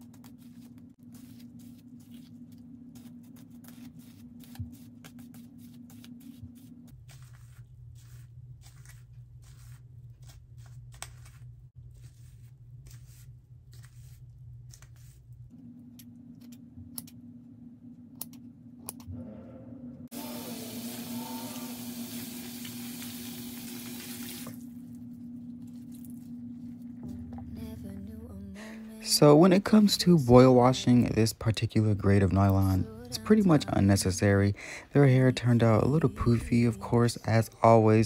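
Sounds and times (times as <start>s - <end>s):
comb scratching through hair: 0.0s - 15.4s
low steady hum: 0.0s - 38.0s.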